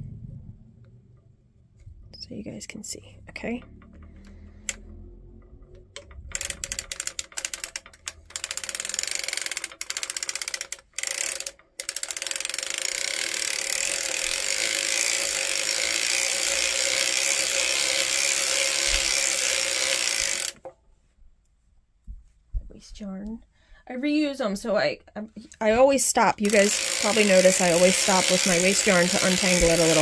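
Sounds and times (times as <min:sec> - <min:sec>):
knitting machine needles clattering: 0:03.3 - 0:20.6, 0:25.6 - 0:30.0.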